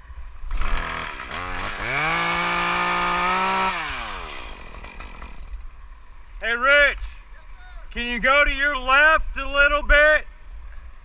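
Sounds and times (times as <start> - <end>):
chainsaw revving: 0.5 - 5.6.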